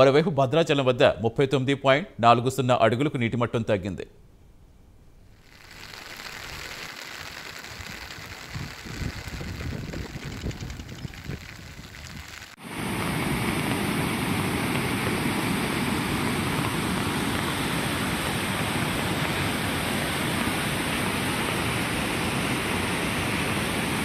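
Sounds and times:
river rushing: 12.6s - 24.0s.

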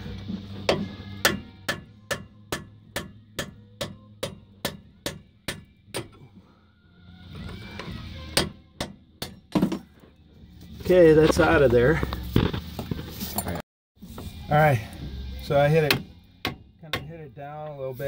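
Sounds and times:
hammer striking metal: 0.6s - 6.2s, 8.3s - 9.9s, 15.8s - 17.2s.

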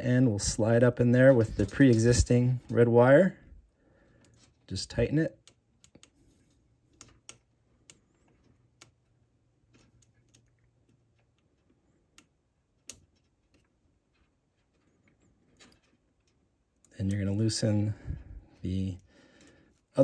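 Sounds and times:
small clicks of wire handling: 4.0s - 4.7s, 5.3s - 20.0s.

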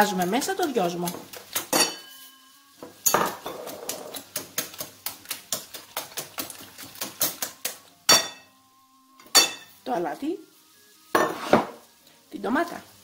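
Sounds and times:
whisk clinking against bowl: 0.1s - 2.4s, 3.0s - 8.4s.

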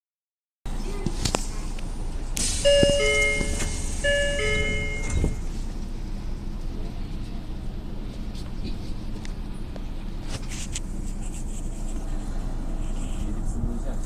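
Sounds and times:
train low rumble: 0.7s - 14.0s
hiss of air from doors: 2.3s - 4.4s
train doors thudding shut: 2.4s - 5.5s
two-note door chime: 2.6s - 5.4s.

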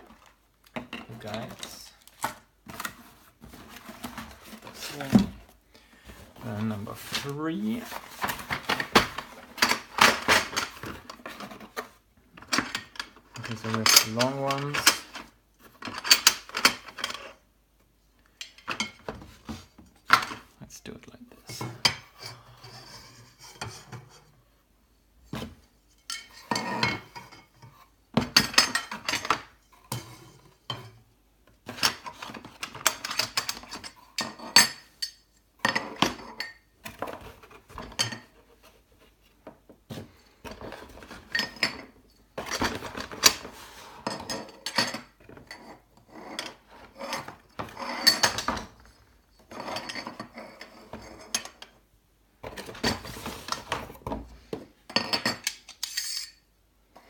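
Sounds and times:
metal rails clinking and scraping: 55.2s - 56.4s.

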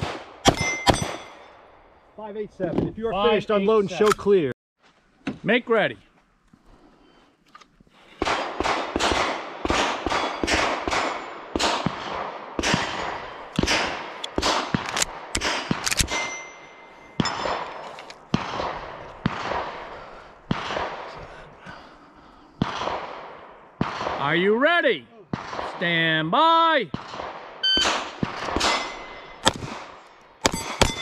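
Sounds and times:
rapid gunfire: 8.2s - 15.8s, 18.4s - 21.2s.

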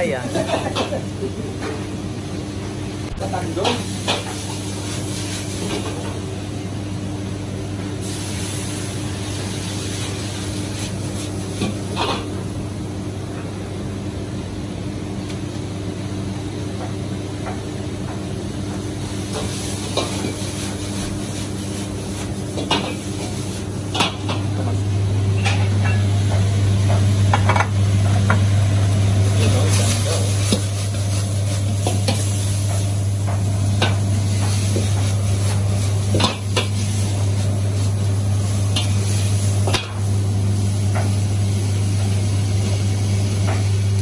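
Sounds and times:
low hum of wok burner: 0.0s - 44.0s
noodles sizzling in a wok: 3.2s - 6.4s, 8.0s - 12.5s, 18.9s - 44.0s.

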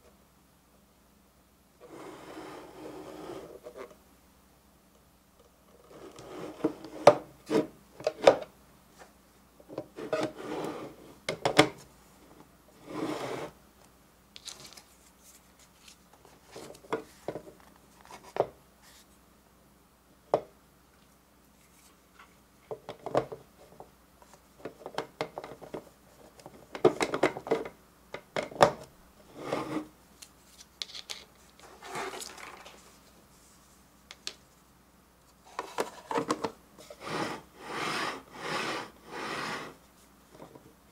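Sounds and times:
plastic scraping against plastic: 31.6s - 32.8s.

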